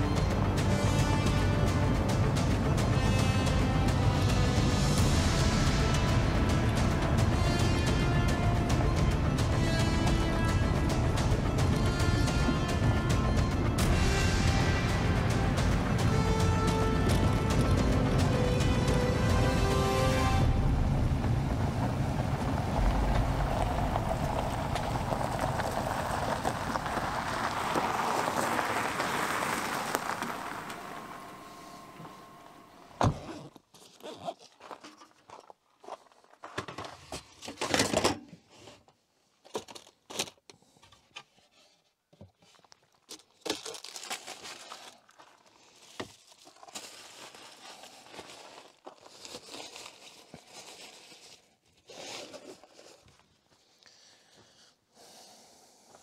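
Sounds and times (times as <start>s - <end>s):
rustling and crinkling: 33.2s - 54.6s.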